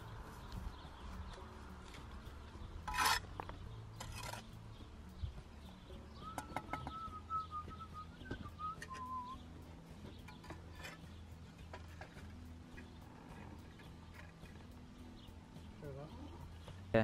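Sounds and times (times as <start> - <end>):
trowel and bricks knocking: 2.8 - 4.5
thin wavering whistle: 6.2 - 9.5.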